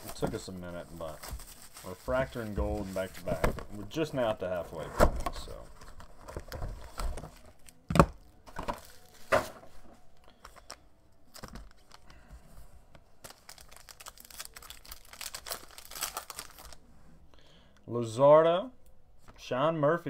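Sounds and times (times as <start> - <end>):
foil wrapper crinkling and tearing: 13.2 - 16.8.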